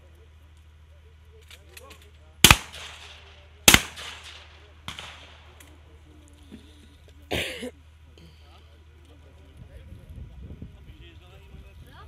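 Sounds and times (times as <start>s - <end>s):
fainter gunshot: 2.4s - 5.5s
shotgun shots with echo: 2.4s - 5.6s.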